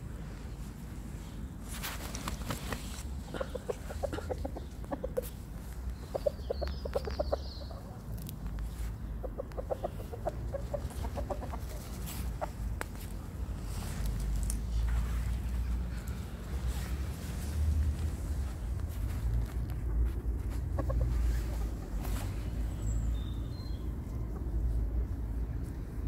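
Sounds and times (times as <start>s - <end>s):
chickens clucking: 3.2s - 12.7s, 20.5s - 22.9s.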